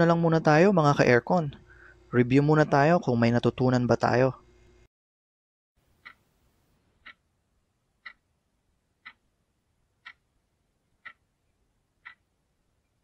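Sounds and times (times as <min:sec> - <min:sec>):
clock ticking: 0:06.0 - 0:06.2, 0:07.0 - 0:07.2, 0:08.0 - 0:08.3, 0:09.0 - 0:09.2, 0:10.0 - 0:10.2, 0:11.0 - 0:11.2, 0:12.0 - 0:12.3.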